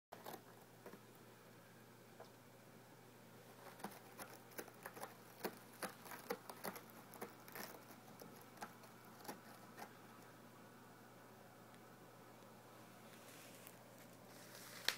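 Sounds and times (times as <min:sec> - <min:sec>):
cat scratching post: 0:03.4 - 0:10.2.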